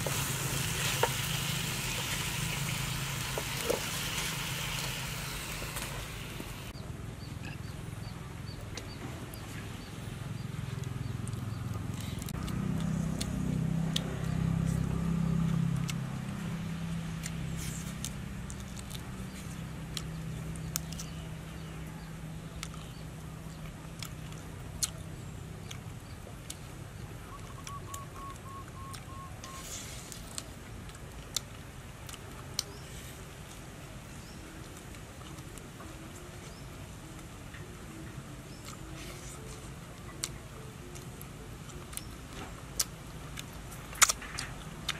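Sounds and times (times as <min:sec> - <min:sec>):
clicks and smacks of eating: 0:17.2 - 0:21.3, 0:22.5 - 0:26.7, 0:27.3 - 0:32.8, 0:38.5 - 0:44.9.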